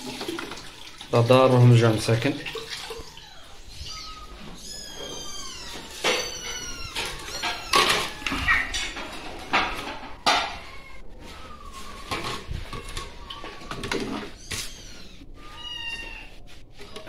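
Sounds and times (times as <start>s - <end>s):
kittens meowing: 2.7s - 17.0s
ceramic plates clattering: 5.7s - 10.6s.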